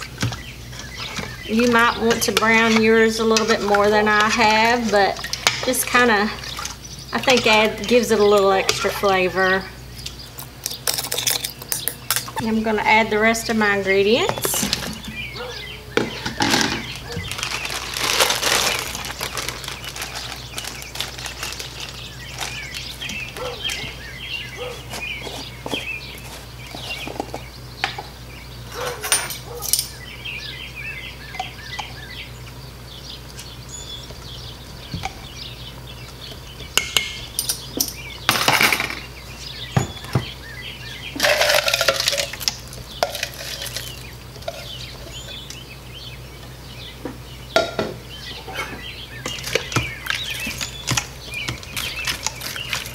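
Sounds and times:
vegetables clattering into metal pot: 16.0 - 23.8, 36.8 - 39.1, 41.2 - 44.8
bowl and utensils clinking on counter: 29.0 - 29.9.

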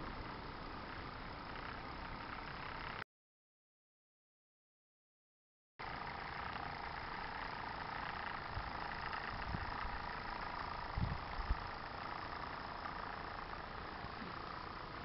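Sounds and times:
model steam engine running: 5.8 - 15.0.

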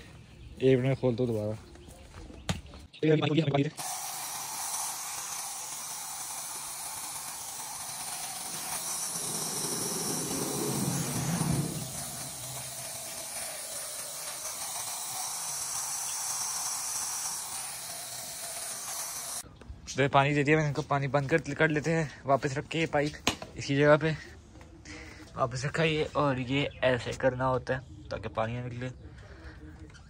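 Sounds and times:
garden hose spraying water: 3.7 - 19.4.

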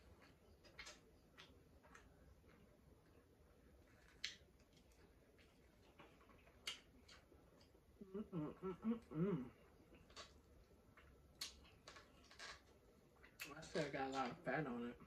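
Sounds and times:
woman chewing food: 0.0 - 13.6
closed-mouth hummed mm-mm: 7.9 - 10.3.

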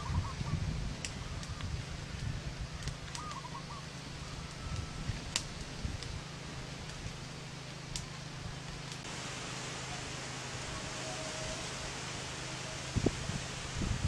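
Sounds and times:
low steady rumble: 0.0 - 14.0
wood fire crackling: 0.7 - 14.0
bird call: 3.2 - 4.9, 9.8 - 13.0.

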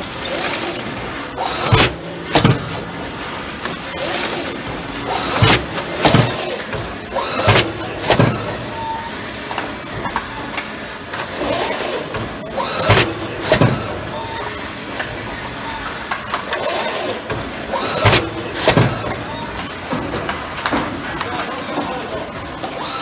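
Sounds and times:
steady mechanical running noise: 0.0 - 23.0.

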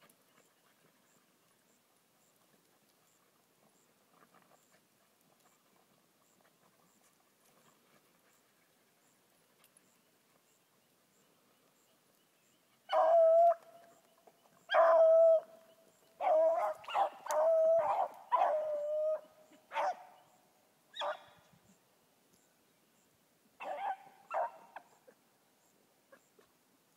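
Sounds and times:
hound baying: 14.7 - 15.6, 16.2 - 20.2.

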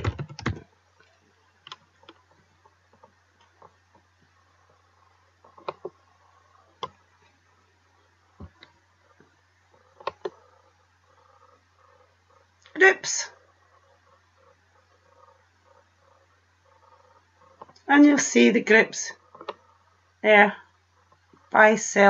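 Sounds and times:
computer keyboard keystrokes: 0.0 - 0.6
faint steady low hum: 0.0 - 22.0
computer mouse clicks: 5.4 - 6.0, 10.0 - 10.5, 19.3 - 19.6.

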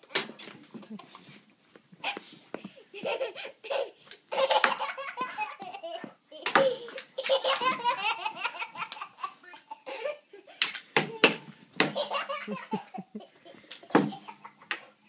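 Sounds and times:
toddler laughing: 2.9 - 14.8.

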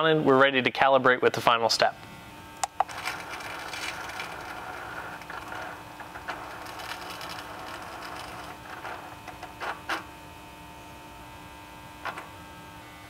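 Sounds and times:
hum: 2.0 - 13.0
motor whirring: 2.6 - 10.1.

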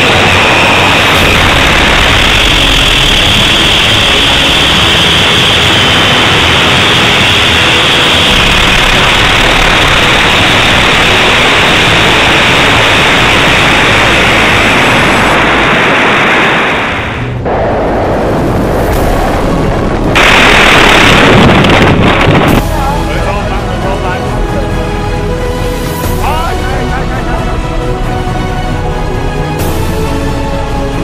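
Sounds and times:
air rushing past: 0.0 - 23.4
rocket motor exhaust roar: 0.0 - 31.0.

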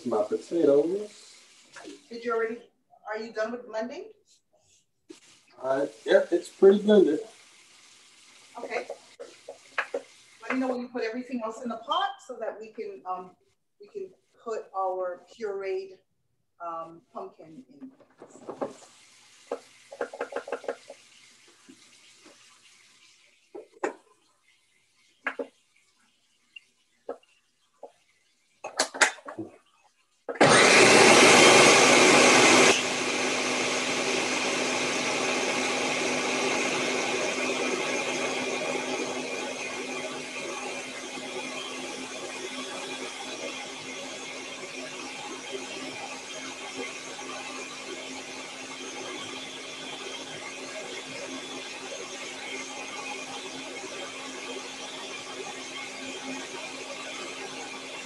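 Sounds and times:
kitchen appliance motor running: 0.0 - 3.5, 5.1 - 11.6, 18.4 - 24.0, 30.3 - 58.0
kitchen clatters and knocks: 19.5 - 21.1.

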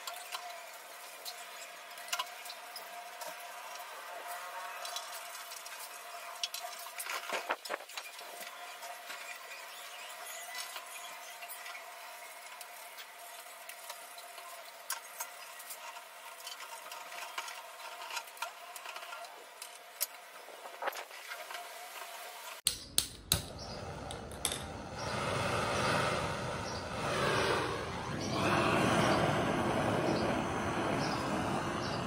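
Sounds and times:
sharp igniter clicks: 22.7 - 24.8
blow torch hissing: 23.4 - 32.0.

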